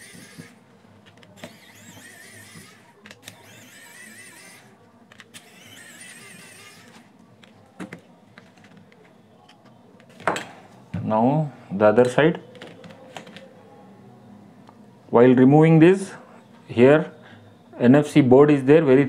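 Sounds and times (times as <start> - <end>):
electric screwdriver whining: 0.0 - 0.6, 1.3 - 7.1.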